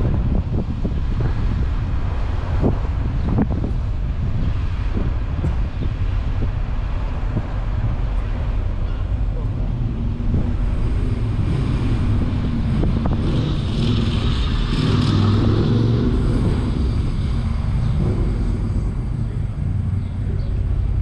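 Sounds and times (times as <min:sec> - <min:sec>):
car engine and tyre rumble: 0:00.0 - 0:21.0
motorcycle passing: 0:09.2 - 0:21.0.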